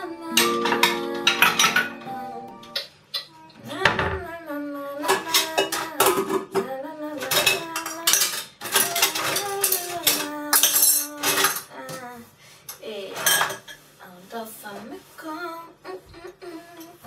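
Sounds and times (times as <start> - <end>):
wavering melody: 0.0 - 2.9
dishes and cutlery clinking: 0.3 - 3.3, 5.0 - 11.7, 13.1 - 13.9.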